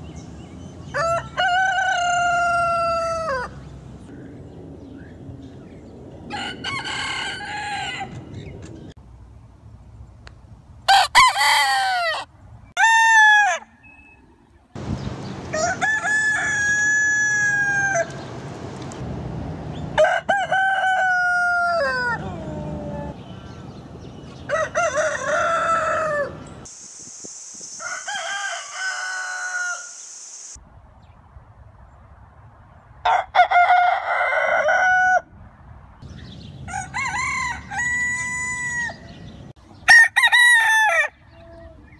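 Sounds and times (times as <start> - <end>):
roosters crowing: 0.9 - 3.7, 6.3 - 8.5, 10.9 - 13.8, 15.5 - 18.3, 19.9 - 23.3, 24.3 - 26.7, 27.7 - 30.1, 33.1 - 35.3, 36.6 - 41.4.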